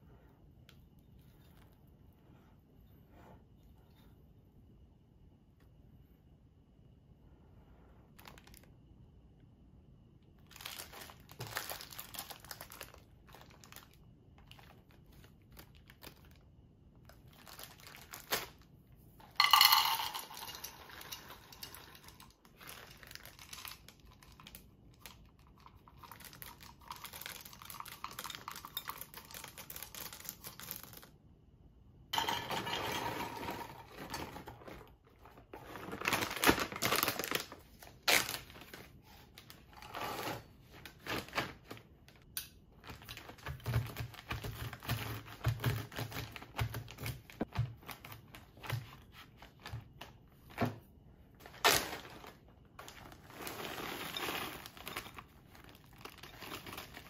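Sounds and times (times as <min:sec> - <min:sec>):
plastic bags crinkling: 0:08.2 - 0:08.7, 0:10.4 - 0:16.5, 0:17.1 - 0:18.7, 0:19.4 - 0:31.1, 0:33.8 - 0:39.8, 0:51.4 - 0:57.0
chocolate chips poured into bowl: 0:19.4 - 0:22.2.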